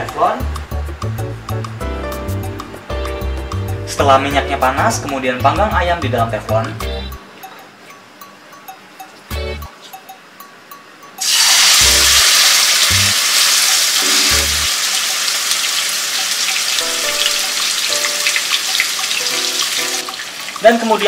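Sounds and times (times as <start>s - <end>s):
soft background music: 0.0s - 21.0s
meat sizzling in oil: 11.2s - 21.0s.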